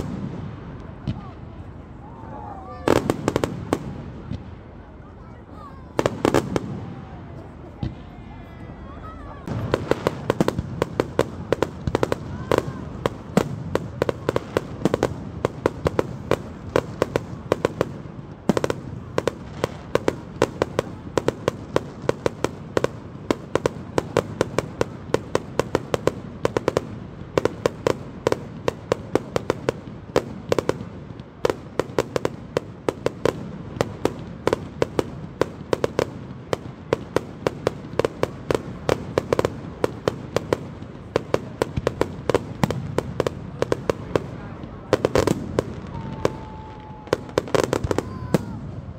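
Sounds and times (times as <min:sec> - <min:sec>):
fireworks bangs and crackles: 0:00.0 - 0:48.9.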